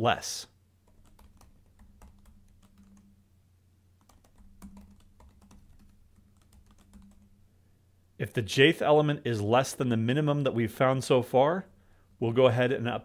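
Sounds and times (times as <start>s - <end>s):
low steady hum: 0.0s - 13.0s
keyboard typing clicks: 0.9s - 3.1s, 4.0s - 7.3s.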